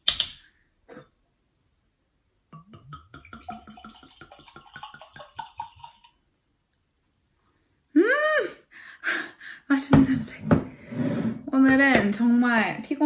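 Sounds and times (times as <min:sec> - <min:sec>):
wine glugging into a glass: 0:02.5 - 0:06.2.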